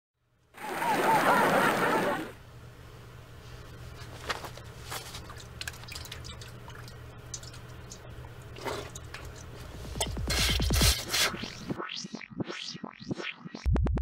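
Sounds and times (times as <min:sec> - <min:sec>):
low steady hum: 0:00.2 - 0:11.8
wet drips and squelches: 0:05.0 - 0:09.8
electronic glitch with pitch glides: 0:11.4 - 0:13.7.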